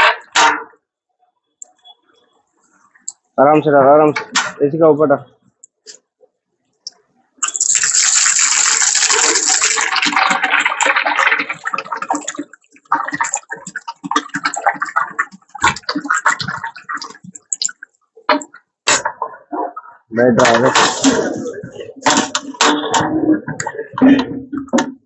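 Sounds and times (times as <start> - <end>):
gravy sizzling in hot oil: 7.4 - 15.1
oil crackling and spattering: 7.4 - 19.2.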